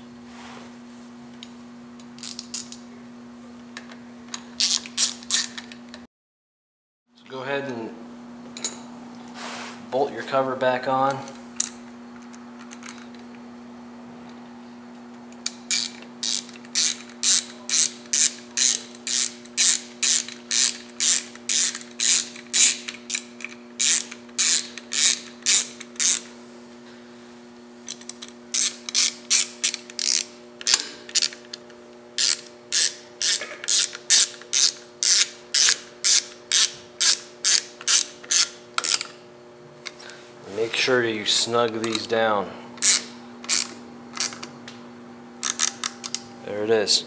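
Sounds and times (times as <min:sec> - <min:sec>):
hand ratchet clicking: 0:04.6 - 0:05.6, 0:15.4 - 0:26.3, 0:27.9 - 0:31.6, 0:32.2 - 0:39.2, 0:42.8 - 0:44.5, 0:45.4 - 0:46.2.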